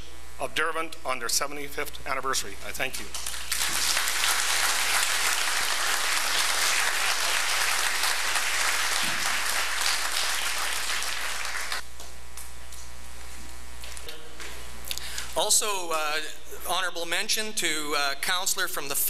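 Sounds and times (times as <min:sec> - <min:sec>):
electrical hum: 0:00.0 - 0:19.0
audience clapping: 0:03.0 - 0:12.5.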